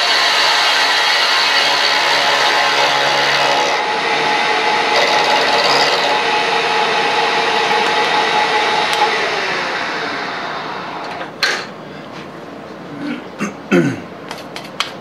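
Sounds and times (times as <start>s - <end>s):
end mill cutting metal: 0.0s - 11.4s
spindle whine: 0.0s - 11.6s.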